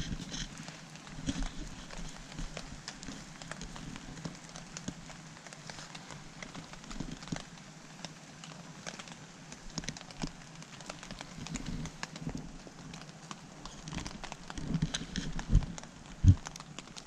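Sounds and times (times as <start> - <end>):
wood fire crackling and snapping: 0.0 - 17.0.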